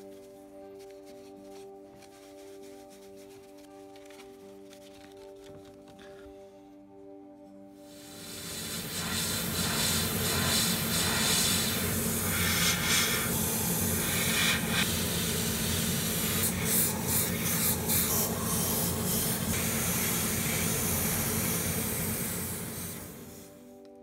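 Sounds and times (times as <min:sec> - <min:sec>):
airbrush spraying hiss: 0:07.8 - 0:23.7
steady low hum: 0:08.0 - 0:23.6.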